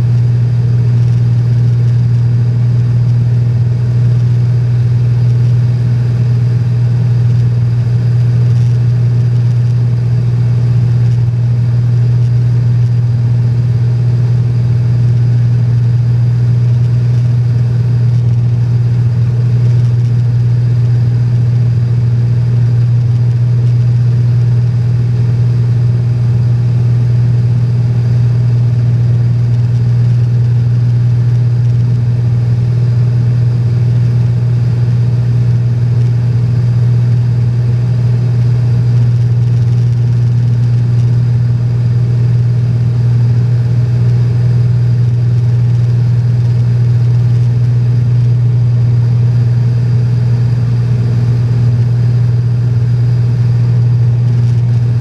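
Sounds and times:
airplane engine drone in cabin: 0:00.0 - 0:55.0.

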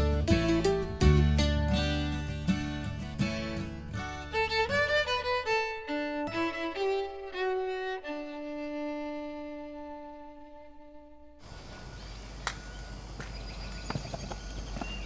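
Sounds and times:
low backing instruments: 0:00.0 - 0:11.2
fiddle melody: 0:00.0 - 0:11.4.

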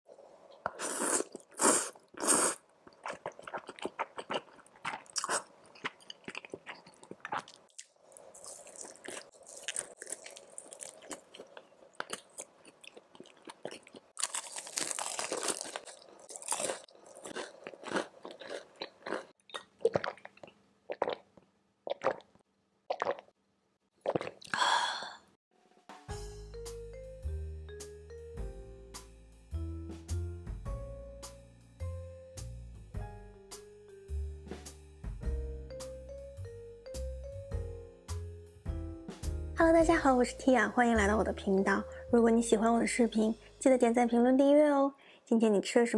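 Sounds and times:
noodles being slurped: 0:00.7 - 0:21.2
crunching fried snacks: 0:01.3 - 0:21.2.

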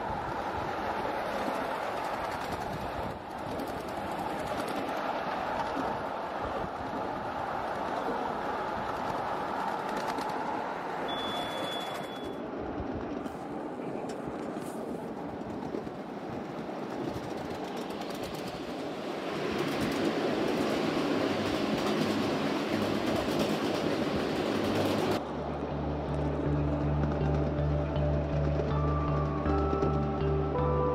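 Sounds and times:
miniature train wheel clatter: 0:08.9 - 0:10.5, 0:11.1 - 0:12.4, 0:16.9 - 0:18.9.

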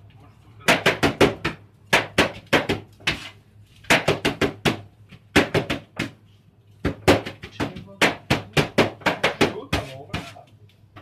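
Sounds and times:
knife chopping on cutting board: 0:06.8 - 0:10.4.

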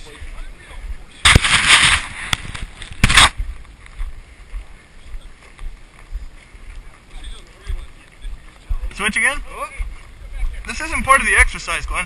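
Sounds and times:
footsteps on dirt trail: 0:00.0 - 0:12.0
wind noise: 0:00.0 - 0:12.0
rustling scraping at microphone: 0:01.2 - 0:04.5.

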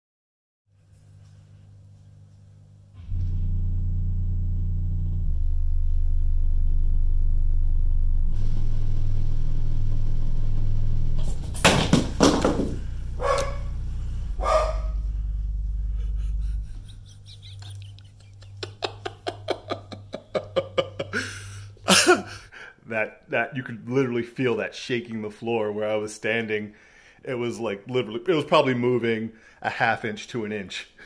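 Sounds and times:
deep bass tones from subwoofer: 0:02.6 - 0:22.0
dog barking: 0:13.2 - 0:13.7, 0:14.4 - 0:15.0.

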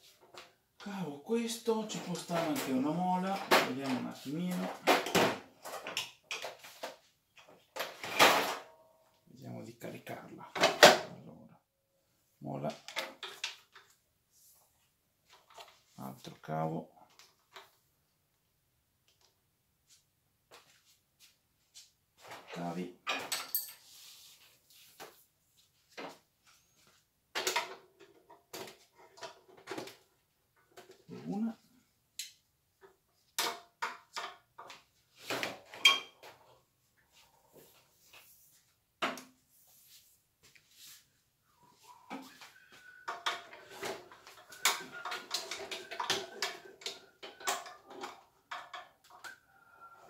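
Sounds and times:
cable and metal frame clattering: 0:43.1 - 0:49.3.

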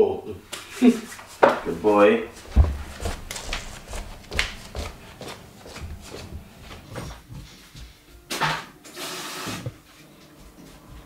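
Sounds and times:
footsteps on wooden floor: 0:00.5 - 0:08.3, 0:09.7 - 0:11.0
sudden knock: 0:02.4 - 0:07.1.

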